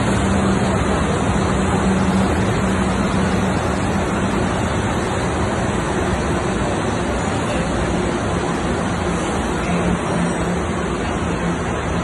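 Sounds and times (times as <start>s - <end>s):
industrial furnace blowers rushing: 0.0s - 12.0s.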